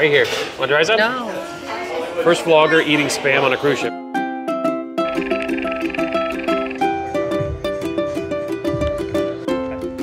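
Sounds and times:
upbeat plucked string music: 3.9s - 10.0s.

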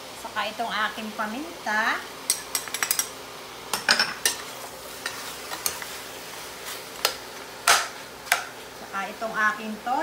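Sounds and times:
chicken sizzling: 0.0s - 10.0s
metal spoon scraping a pan: 3.8s - 6.0s.

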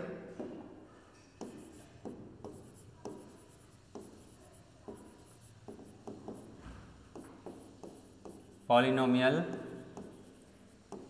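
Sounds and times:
stylus tapping on a screen: 1.4s - 8.6s, 9.5s - 11.0s.

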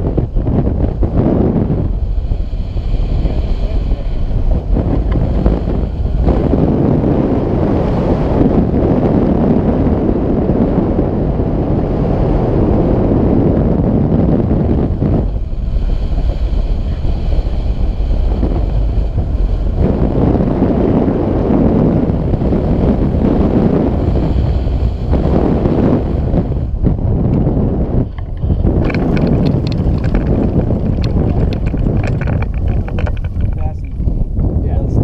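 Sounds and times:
wind buffeting microphone: 0.0s - 35.0s.

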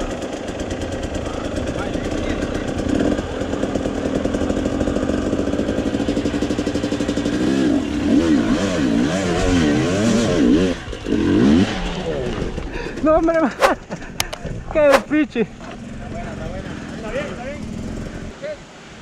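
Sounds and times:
motorcycle engine revving: 0.0s - 12.6s.

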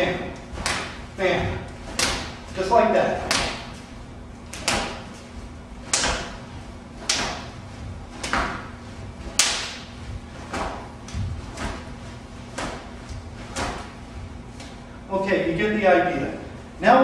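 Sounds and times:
slapping strikes on an arm: 0.6s - 1.0s, 1.9s - 2.4s, 3.2s - 3.8s, 4.5s - 5.1s, 5.8s - 6.4s, 7.0s - 7.6s, 8.2s - 11.9s, 12.5s - 12.9s, 13.5s - 14.0s
shin kicks to a leg: 7.0s - 14.0s.

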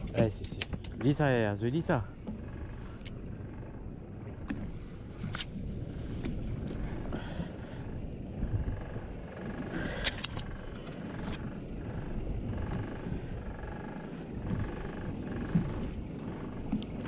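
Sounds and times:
boat low rumble: 0.0s - 17.0s.

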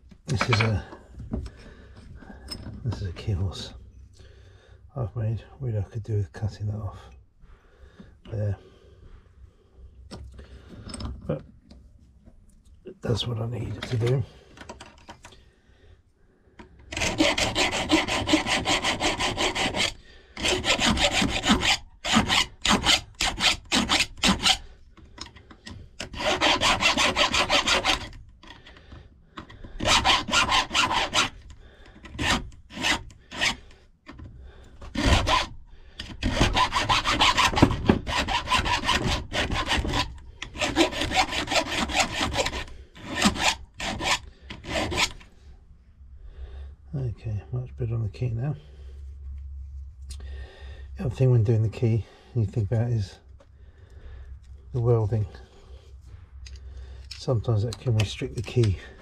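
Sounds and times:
hand file scraping metal key: 0.3s - 0.8s, 16.9s - 28.8s, 29.4s - 45.3s.

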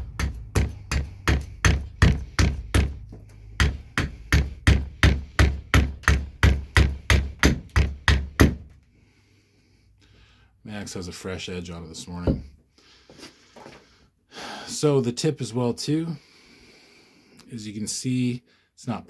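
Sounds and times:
axe chopping wood: 0.0s - 8.7s.

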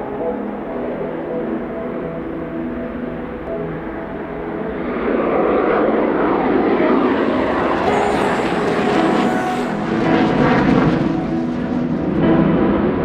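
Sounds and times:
jet engine roar: 3.8s - 13.0s.

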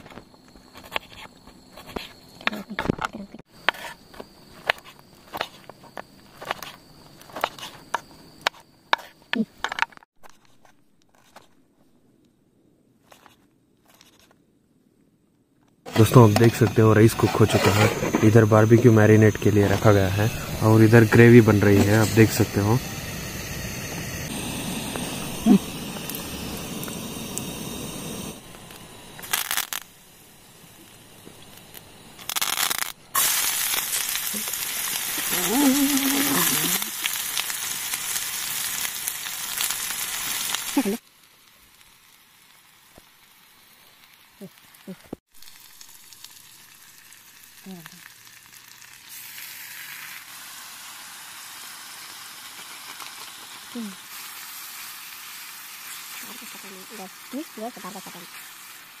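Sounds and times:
gas stove burner hissing: 15.9s - 41.0s
hot oil sizzling: 15.9s - 59.0s.

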